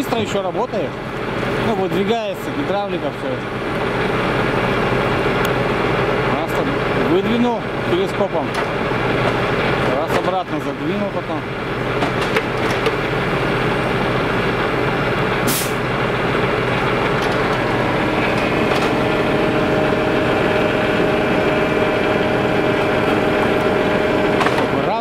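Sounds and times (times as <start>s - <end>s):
diesel truck engine running: 0.0s - 25.0s
steady high whine: 0.0s - 25.0s
sharp air hiss: 15.5s - 15.8s.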